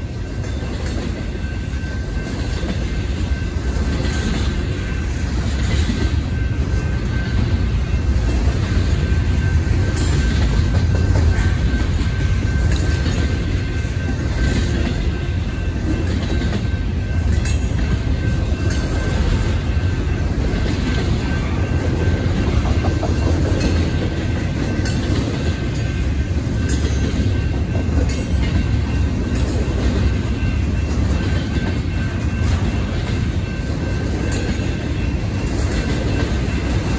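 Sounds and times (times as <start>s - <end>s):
freight train rumble: 0.0s - 36.9s.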